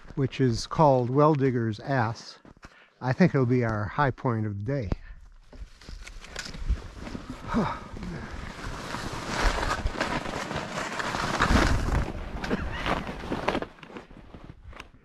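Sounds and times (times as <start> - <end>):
skis scraping over snow: 6.7 - 14.5.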